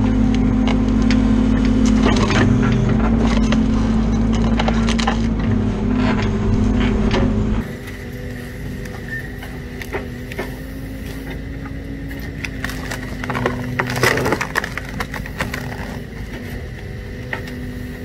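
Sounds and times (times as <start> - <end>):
excavator humming: 0.0 - 18.0
wood cracking and splintering: 7.1 - 17.6.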